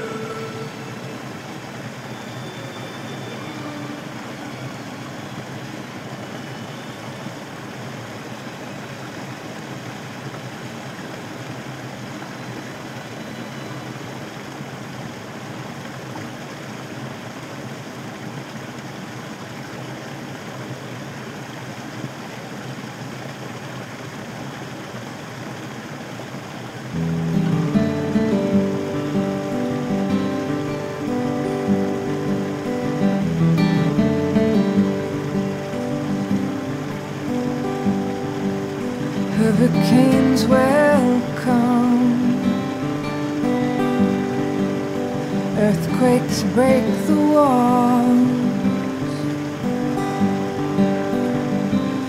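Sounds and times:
water spilling over rocks: 0:00.0 - 0:52.0.

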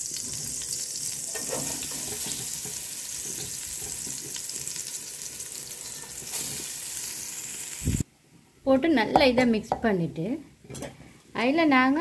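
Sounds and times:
ghee sizzling in a pot: 0:00.0 - 0:08.0.

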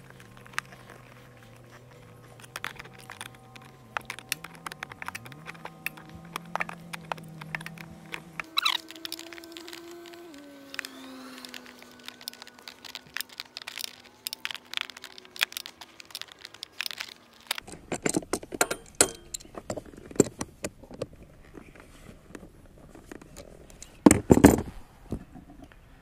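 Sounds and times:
metallic clicks of hand tool: 0:02.4 - 0:20.5.

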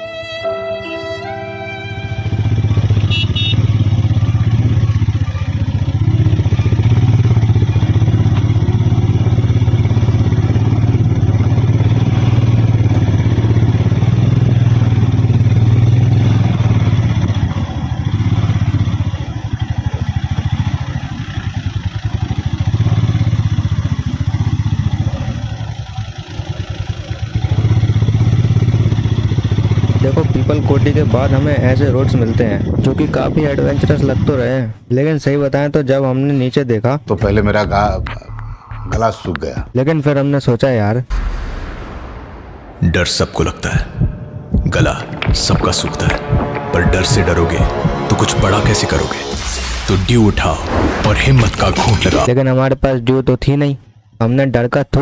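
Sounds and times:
motorcycle engine running: 0:01.9 - 0:34.4, 0:44.0 - 0:49.5.

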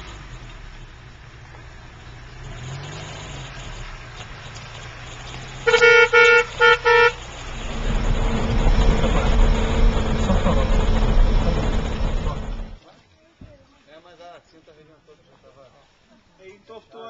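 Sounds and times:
car engine approaching: 0:00.0 - 0:12.8
car horn honking: 0:05.6 - 0:07.2.

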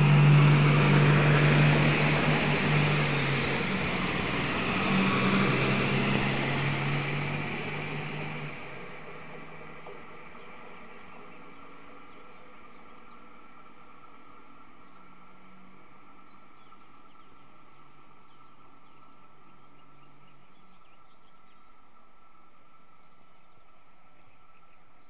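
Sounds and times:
railcar engine drone: 0:00.0 - 0:25.0.

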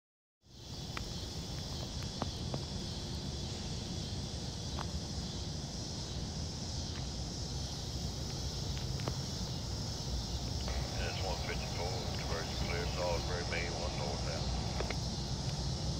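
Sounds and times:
high-pitched insect chorus: 0:00.5 - 0:15.9
low rumble: 0:10.7 - 0:15.3.

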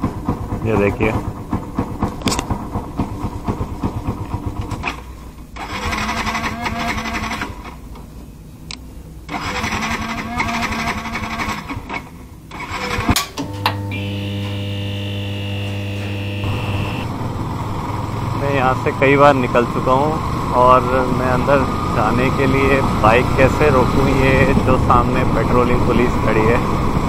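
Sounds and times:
motorcycle starter cranking: 0:00.0 - 0:07.8, 0:09.3 - 0:26.1
low drone with high tone: 0:13.6 - 0:26.6.

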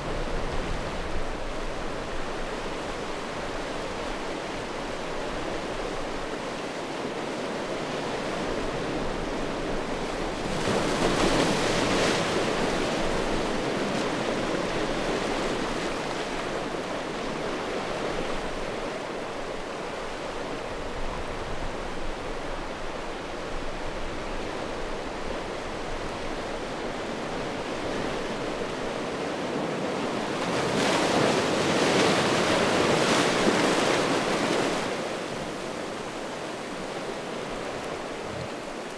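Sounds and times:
waves washing over stones: 0:27.1 - 0:38.9.

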